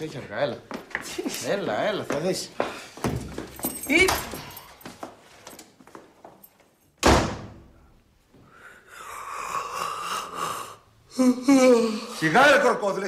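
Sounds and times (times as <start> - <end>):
faint knocks and shuffles: 0.0 - 7.0
door slamming shut: 7.0 - 7.7
man yawning: 8.6 - 12.2.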